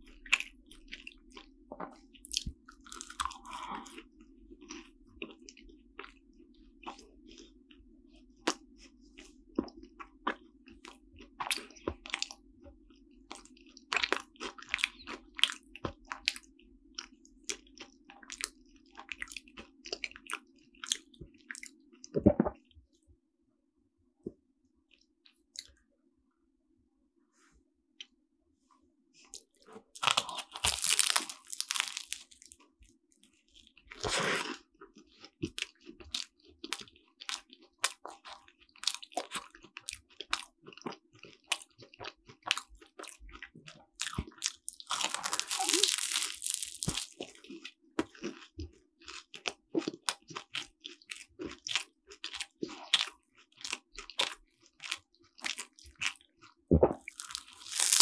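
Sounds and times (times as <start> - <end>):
chewing: 0.0 - 22.8, 24.9 - 25.8, 29.2 - 58.0
crunchy pastry bites: 0.2 - 4.0, 29.4 - 58.0.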